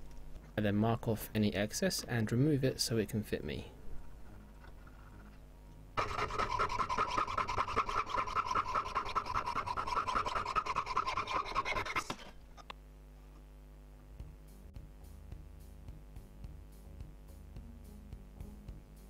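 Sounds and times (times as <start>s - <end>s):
saw rasping through metal: 6.0s - 12.3s.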